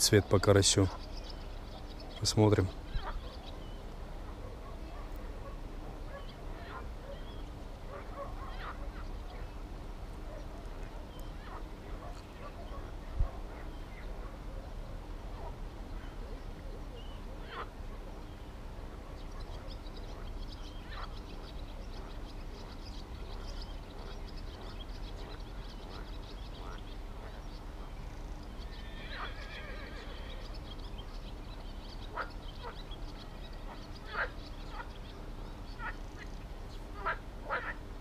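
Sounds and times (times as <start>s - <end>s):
steady low hum: 0.0s - 38.0s
long stacked-tone animal call: 25.4s - 30.7s
short animal calls: 28.6s - 30.4s.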